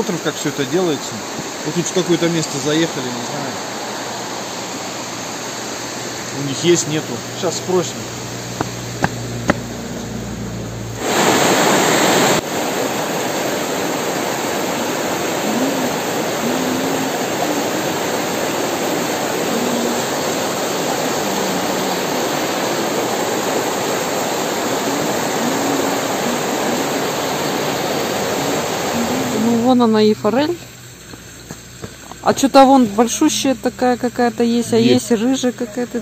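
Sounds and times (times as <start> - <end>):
river rushing over stones: 0.0 - 9.9, 11.0 - 29.8
low hum: 2.6 - 11.8.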